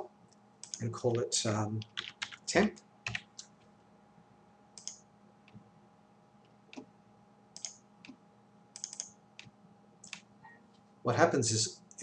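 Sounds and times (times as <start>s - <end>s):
faint steady hum: 0.0s - 12.0s
computer mouse clicks: 0.6s - 0.9s, 4.8s - 5.6s, 7.6s - 8.2s, 8.8s - 10.3s.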